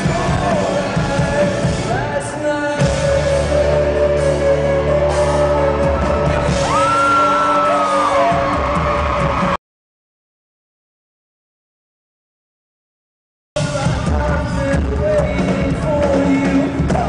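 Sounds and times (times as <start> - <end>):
live rock band playing loud: 0.0 - 9.6, 13.6 - 17.0.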